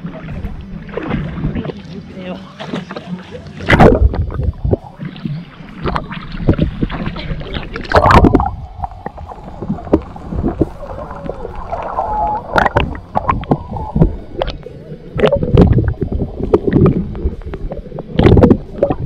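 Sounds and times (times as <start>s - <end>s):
muffled underwater gurgling: 0.0s - 19.0s
water splashing against camera: 0.0s - 19.0s.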